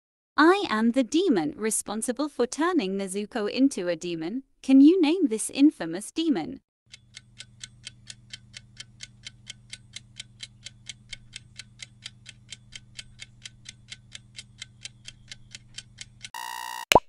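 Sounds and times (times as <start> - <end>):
clock ticking: 6.9 - 16.3.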